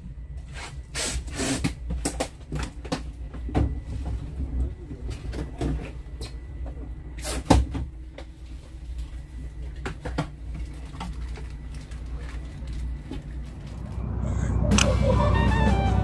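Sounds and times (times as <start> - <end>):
boat engine rumble: 7.9 - 16.0.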